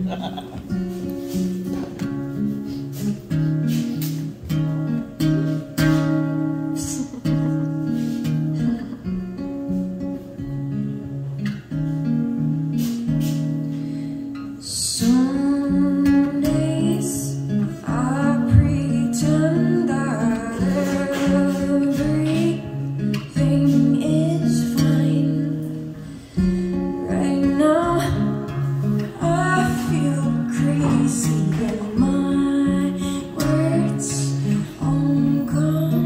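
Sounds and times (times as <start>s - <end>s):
acoustic guitar strumming: 0.0s - 36.0s
woman singing: 5.9s - 8.9s, 14.6s - 36.0s.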